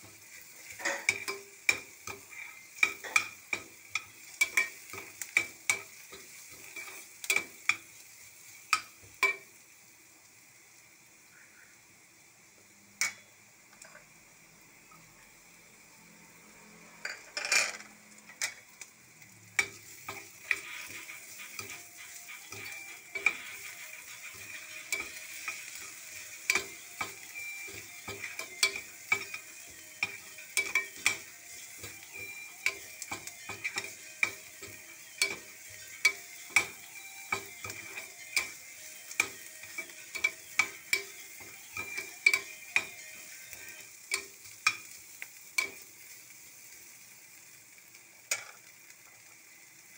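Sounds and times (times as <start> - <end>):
onion and garlic sizzling in oil: 0.0 - 49.9.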